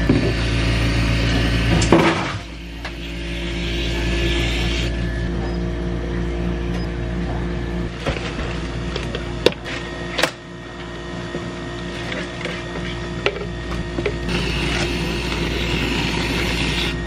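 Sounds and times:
low machine hum: 0:00.0 - 0:17.0
whipped-cream dispenser hissing: 0:14.3 - 0:17.0.

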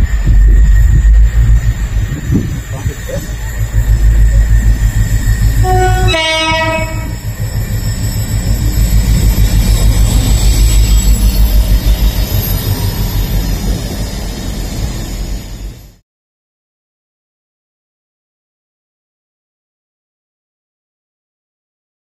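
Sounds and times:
diesel locomotive rumble: 0:00.0 - 0:16.0
two-tone train horn: 0:05.6 - 0:07.3.

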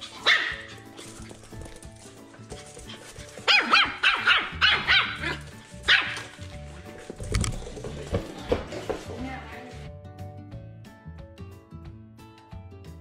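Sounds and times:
background music: 0:00.0 - 0:13.0
puppy yapping: 0:00.1 - 0:01.2, 0:03.4 - 0:06.4.

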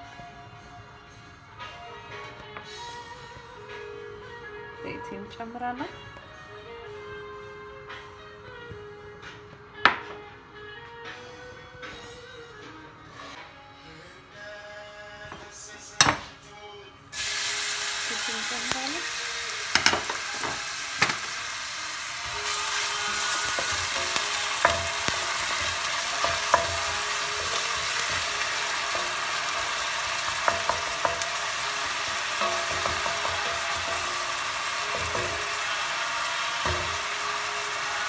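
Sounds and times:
onions sizzling in hot oil: 0:17.2 - 0:38.0.

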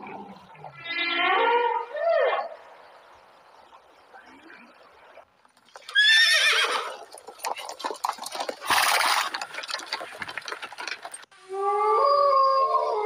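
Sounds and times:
hoofbeats galloping: 0:05.4 - 0:11.3
horse whinnying: 0:05.8 - 0:11.2
wolves howling: 0:11.5 - 0:13.0.

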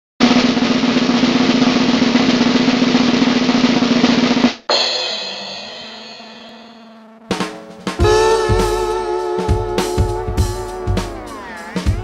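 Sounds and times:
snare drum roll: 0:00.2 - 0:12.0
ringing chord: 0:04.7 - 0:11.6.

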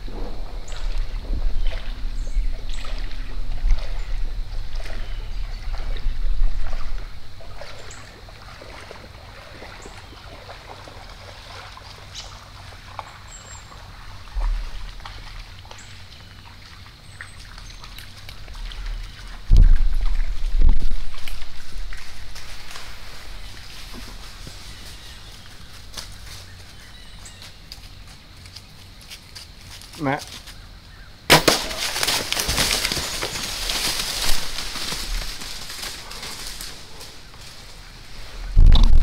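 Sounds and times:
wind buffeting microphone: 0:00.0 - 0:07.9, 0:18.1 - 0:26.6, 0:33.4 - 0:39.0
small ticks and rustles: 0:00.6 - 0:31.1, 0:31.8 - 0:39.0.

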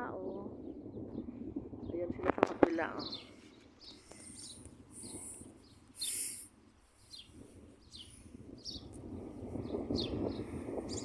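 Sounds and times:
small bird chirping: 0:02.8 - 0:11.0.

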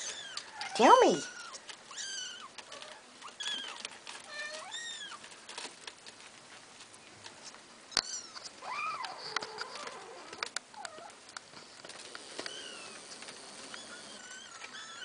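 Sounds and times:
kittens mewing: 0:12.2 - 0:15.0.

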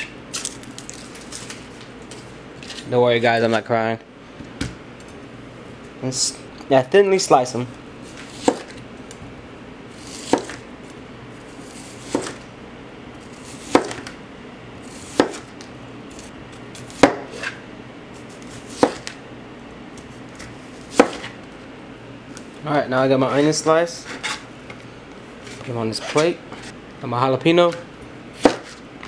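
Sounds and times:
knife slicing onion: 0:08.0 - 0:08.8, 0:09.9 - 0:10.7, 0:11.4 - 0:12.4, 0:13.2 - 0:14.2, 0:14.8 - 0:17.6, 0:18.2 - 0:19.2, 0:20.7 - 0:21.4, 0:28.4 - 0:28.8.

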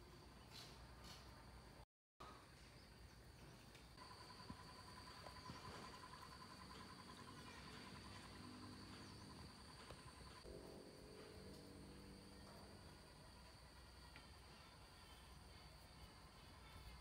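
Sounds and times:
high-pitched whine: 0:04.0 - 0:17.0.

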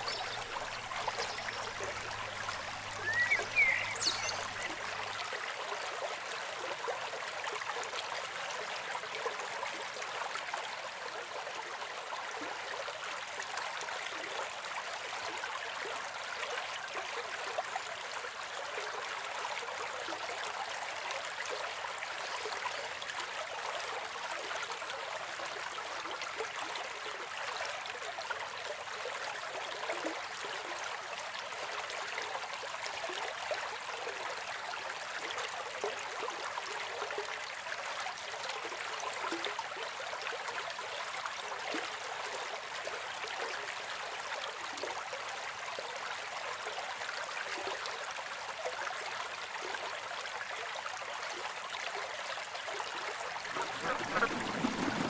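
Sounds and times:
stream rushing over rocks: 0:00.0 - 0:06.9, 0:51.9 - 0:55.0.

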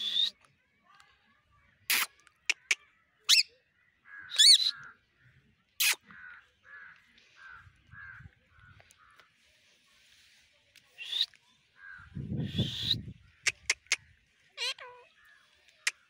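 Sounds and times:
parakeets screeching: 0:04.3 - 0:04.8, 0:14.6 - 0:15.0.

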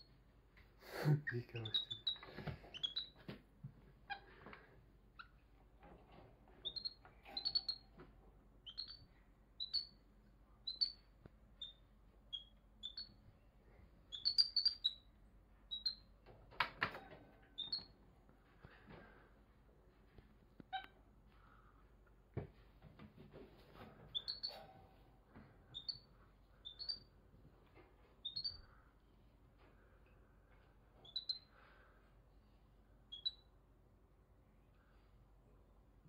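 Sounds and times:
monkey chirping: 0:01.6 - 0:03.2, 0:06.6 - 0:07.9, 0:08.6 - 0:10.0, 0:10.6 - 0:11.0, 0:11.6 - 0:13.2, 0:14.1 - 0:15.1, 0:15.7 - 0:16.1, 0:17.6 - 0:17.9, 0:24.1 - 0:24.6, 0:25.8 - 0:27.1, 0:28.2 - 0:28.6, 0:31.0 - 0:31.5, 0:33.1 - 0:33.4.

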